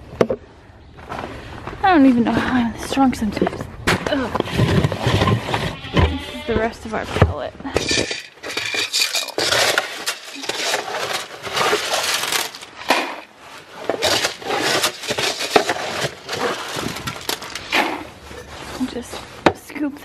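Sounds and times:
bins knocking: 3.8 - 18.1
pellets rattling against plastic: 7.8 - 18.2.

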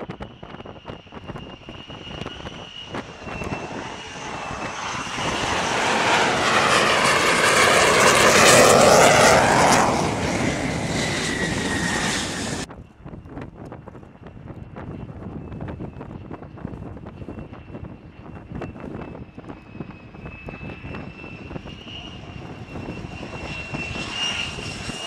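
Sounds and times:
jet engine passing: 0.0 - 12.7, 17.4 - 25.0
thin high whine: 0.5 - 12.7.

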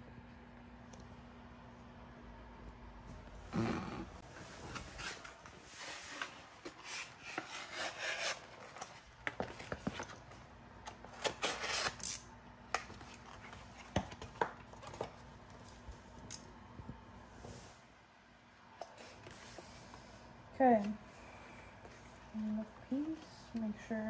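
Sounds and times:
vinyl film rustling and crackling: 12.7 - 16.3.

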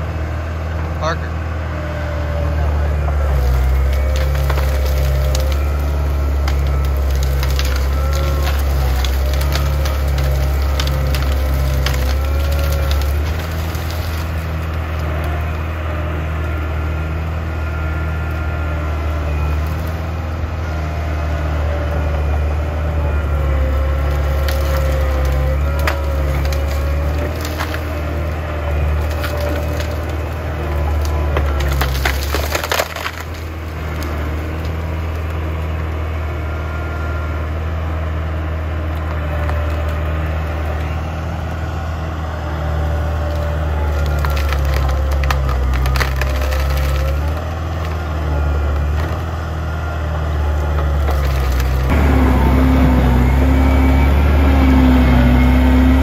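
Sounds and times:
diesel engine running: 0.0 - 56.0
wood cracking and splintering: 3.0 - 20.4, 22.8 - 36.0, 38.7 - 41.6, 42.6 - 53.6.

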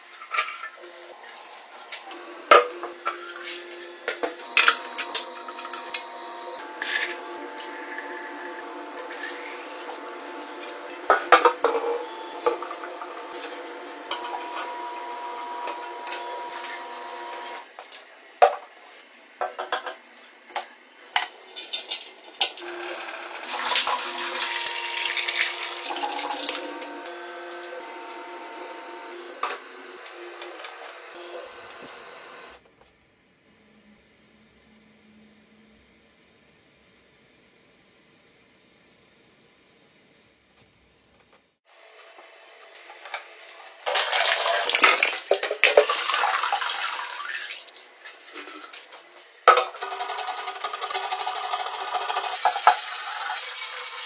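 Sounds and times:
water pouring into tank: 43.9 - 47.7.

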